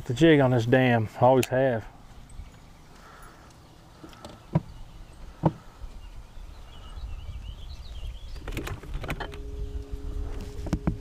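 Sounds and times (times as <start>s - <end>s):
low rumble of wind: 0.0s - 11.0s
sharp knocks on a boat: 5.4s - 5.6s.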